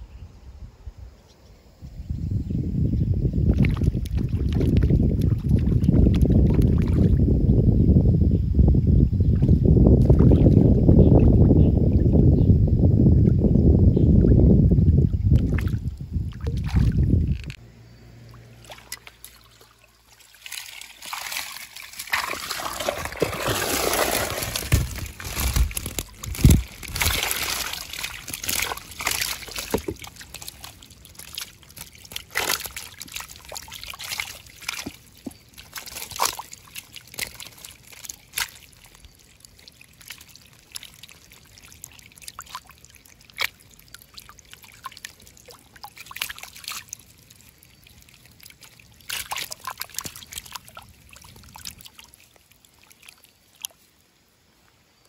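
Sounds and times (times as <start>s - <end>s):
water splashing and sloshing: 3.4s - 7.3s, 9.2s - 12.3s, 14.2s - 17.6s, 18.2s - 55.0s
water trickling: 18.2s - 54.1s.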